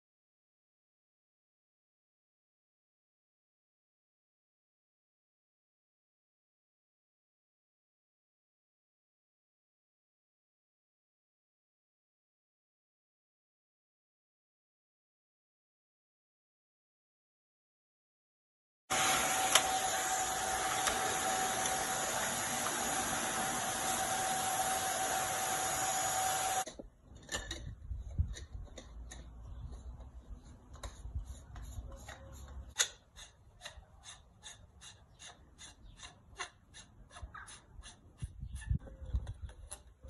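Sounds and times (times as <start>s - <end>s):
vacuum cleaner whining: 18.9s - 26.7s.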